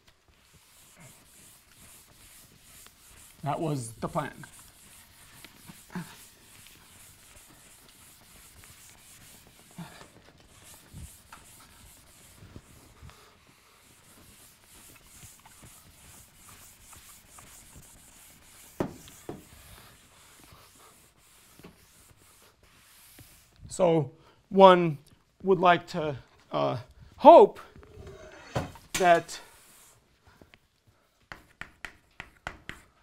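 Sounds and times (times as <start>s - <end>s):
eraser wiping chalkboard: 0.2s - 23.6s, 28.0s - 30.0s.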